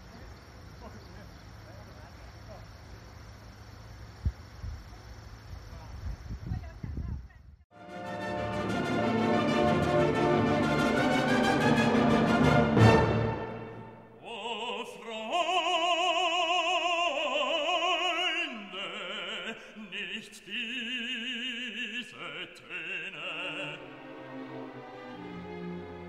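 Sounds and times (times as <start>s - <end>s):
operatic voice singing: 14.2s - 24.4s.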